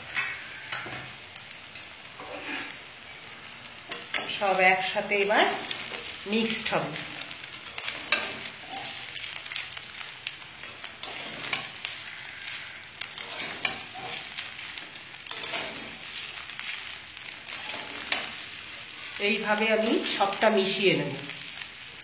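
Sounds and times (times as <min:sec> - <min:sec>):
frying hiss: 0:00.0 - 0:22.0
metal spatula scraping a wok: 0:02.1 - 0:03.2, 0:05.5 - 0:20.4.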